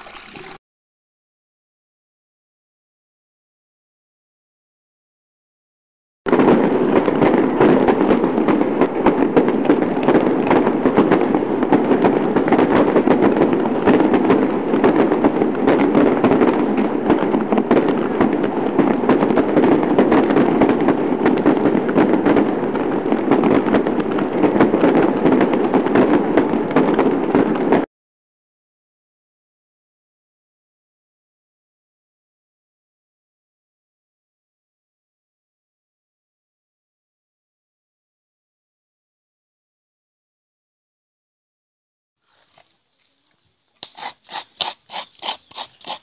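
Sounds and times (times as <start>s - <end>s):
palm fronds fire crackling: 6.3s - 27.8s.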